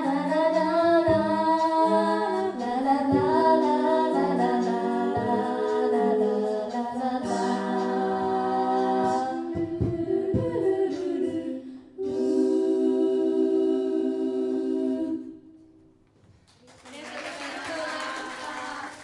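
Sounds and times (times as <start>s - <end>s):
a cappella group singing: 0.0s - 15.8s
low thumps: 9.4s - 11.0s.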